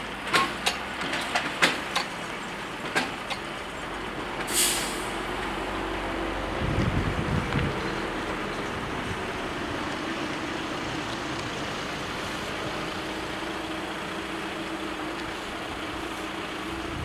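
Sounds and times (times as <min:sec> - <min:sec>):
vehicle engines idling: 0:00.0 - 0:17.0
rushing hiss: 0:04.4 - 0:06.0.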